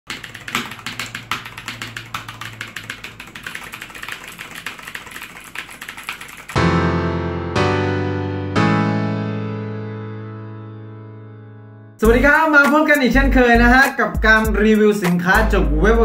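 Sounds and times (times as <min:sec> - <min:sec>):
mechanical keyboard typing: 0:00.0 - 0:06.6
piano-like chords: 0:06.6 - 0:12.1.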